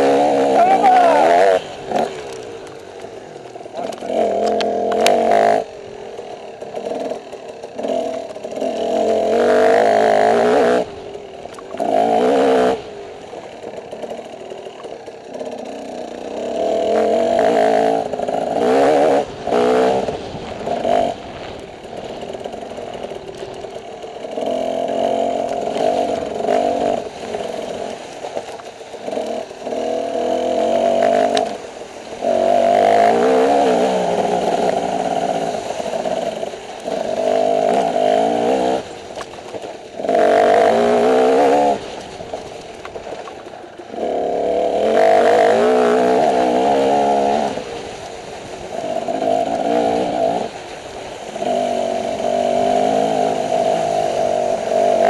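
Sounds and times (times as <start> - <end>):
dirt bike engine revving: 0.0 - 39.2, 39.9 - 42.1, 43.9 - 55.0
bike rattling: 0.0 - 55.0.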